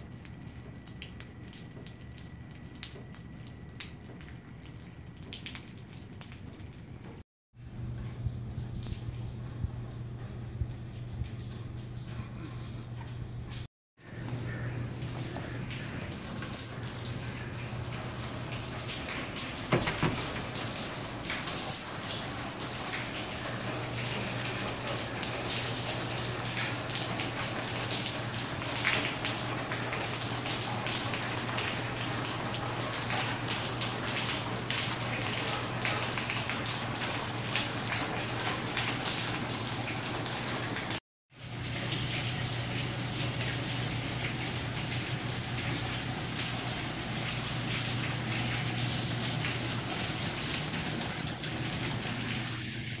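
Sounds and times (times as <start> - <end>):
water pattering and splashing: 0.0 - 53.0
steady low hum: 7.6 - 21.6.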